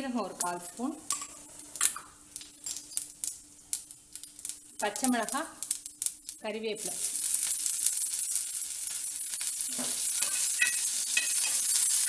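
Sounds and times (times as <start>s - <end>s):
chillies sizzling in hot oil: 0.0s - 12.0s
metal spoon stirring in pan: 7.0s - 12.0s.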